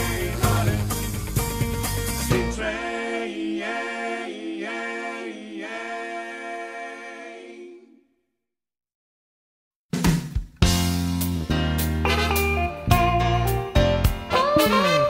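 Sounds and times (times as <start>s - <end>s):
song playing: 10.8s - 15.0s.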